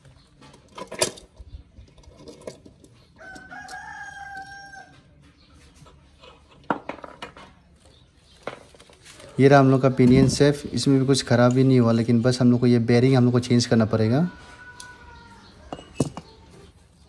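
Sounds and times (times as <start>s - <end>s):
rooster crowing: 3.2s - 5.1s, 14.2s - 16.0s.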